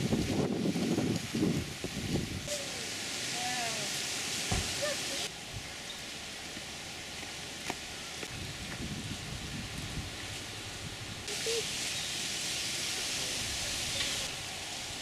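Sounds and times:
wind rumble on microphone: 0.0s - 2.5s, 8.2s - 11.3s
steady hiss: 0.0s - 15.0s.

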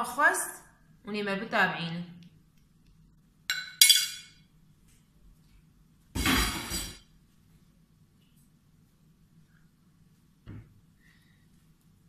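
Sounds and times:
spoon clinking on glass platter: 3.5s - 4.4s.

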